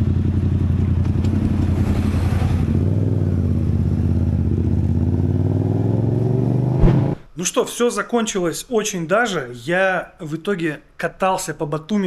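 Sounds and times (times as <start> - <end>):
motorcycle engine running: 0.0 - 5.6.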